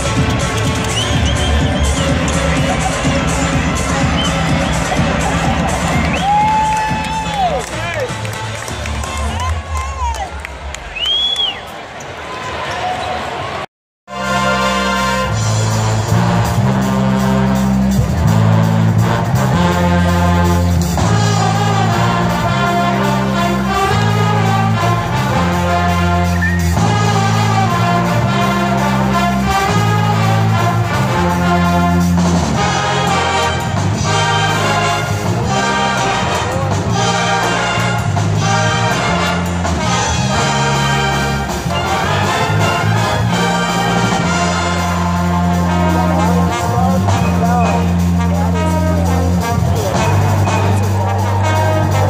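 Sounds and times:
drum kit beat: 0.0s - 8.5s, 14.4s - 52.0s
trumpets and trombones: 0.0s - 9.3s, 14.1s - 52.0s
brass pep band playing: 0.0s - 9.6s, 14.1s - 52.0s
sousaphone bass notes: 44.0s - 51.4s.

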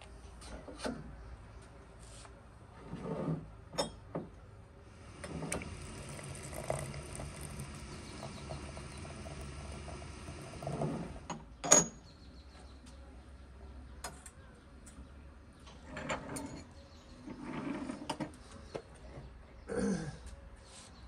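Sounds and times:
hot water pouring into teapot: 5.0s - 11.3s.

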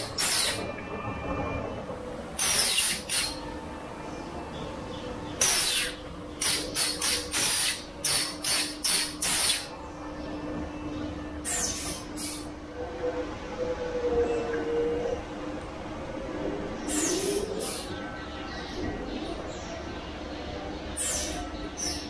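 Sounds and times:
machine humming: 0.0s - 22.0s
short sharp hissing bursts: 5.4s - 9.7s.

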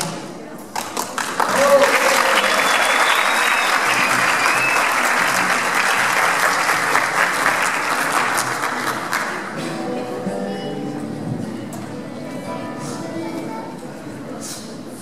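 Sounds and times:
audience applauding: 0.8s - 9.6s.

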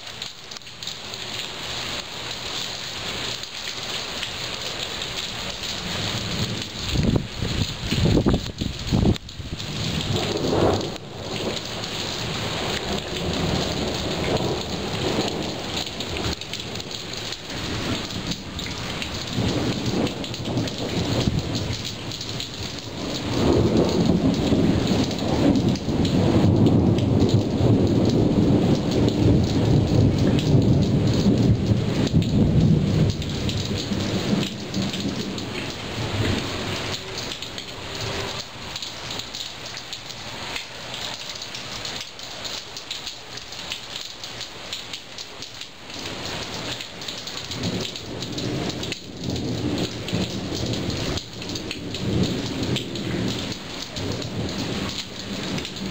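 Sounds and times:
rain falling: 0.0s - 55.9s
low rumble of thunder: 5.5s - 39.8s, 47.4s - 55.9s.

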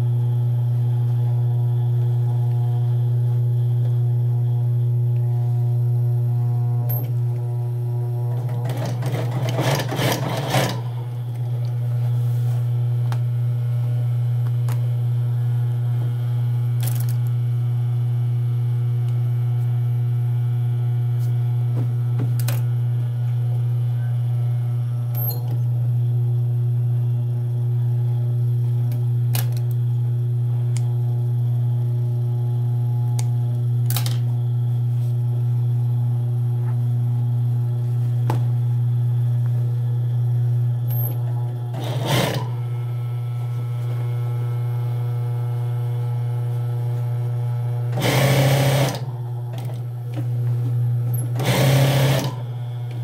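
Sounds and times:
sewing machine motor humming: 6.4s - 11.8s, 40.9s - 44.1s, 46.8s - 53.0s
sewing machine stitching: 8.3s - 11.0s, 41.7s - 42.6s, 47.9s - 49.8s, 51.2s - 52.4s.

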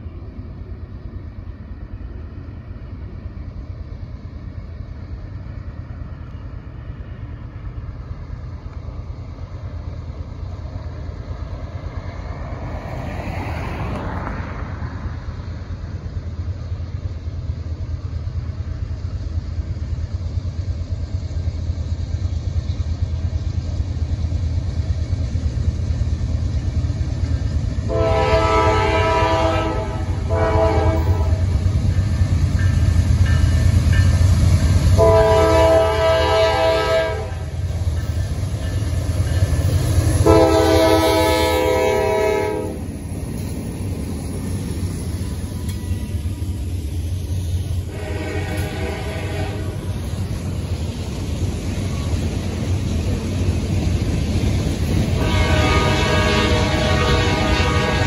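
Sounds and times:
diesel engines rumbling: 2.6s - 58.0s
locomotive air horn blasts: 27.9s - 31.6s, 35.0s - 37.5s, 40.2s - 42.8s, 47.9s - 49.9s, 55.2s - 58.0s.

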